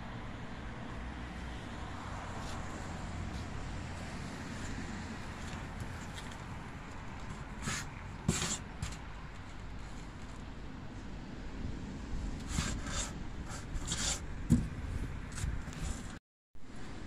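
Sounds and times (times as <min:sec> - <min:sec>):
low outdoor rumble: 0:00.0 - 0:17.0
short scuffing noises: 0:04.5 - 0:10.4.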